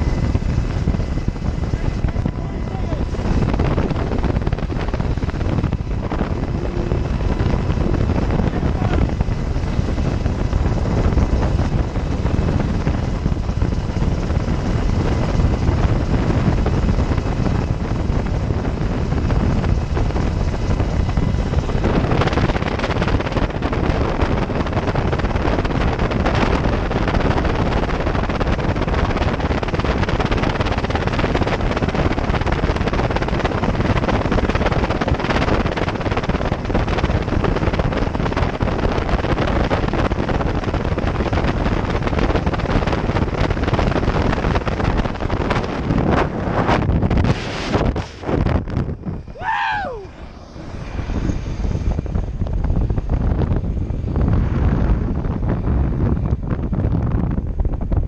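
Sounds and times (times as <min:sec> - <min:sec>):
helicopter rotor and engine noise: 0:00.0 - 0:58.0
wind buffeting microphone: 0:00.0 - 0:58.0.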